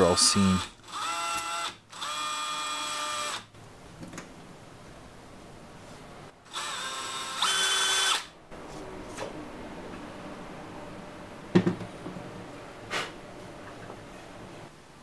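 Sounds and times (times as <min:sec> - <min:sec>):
cordless drill whining: 0:00.8 - 0:03.4, 0:06.5 - 0:08.3.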